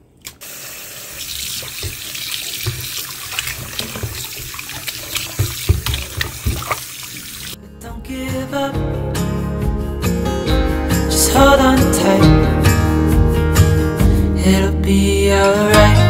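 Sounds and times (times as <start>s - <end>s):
water splashing: 0.4s - 7.6s
tap running into sink: 1.2s - 7.5s
knocks in sink: 5.3s - 6.8s.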